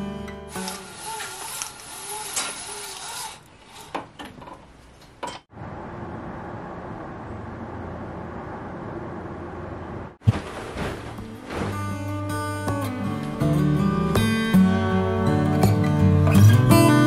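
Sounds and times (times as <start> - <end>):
duvet shaken thump: 10.2 - 12.3.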